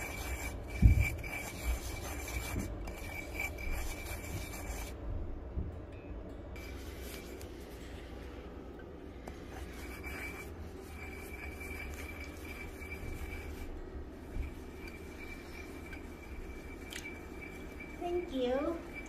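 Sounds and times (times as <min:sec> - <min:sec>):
stone pestle grinding in mortar: 0:00.0 - 0:05.0, 0:09.6 - 0:19.0.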